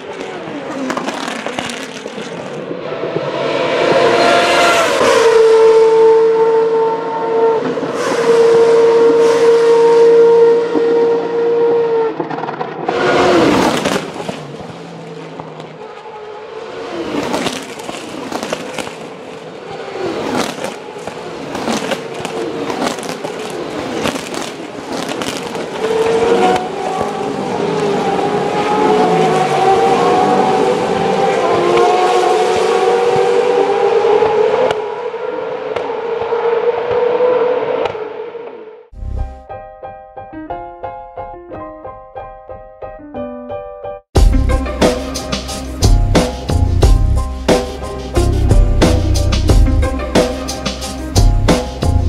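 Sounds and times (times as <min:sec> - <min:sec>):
exhaust cracks: 0:00.0 - 0:03.8, 0:12.0 - 0:16.2, 0:16.9 - 0:35.0
racing car engines: 0:00.0 - 0:38.9.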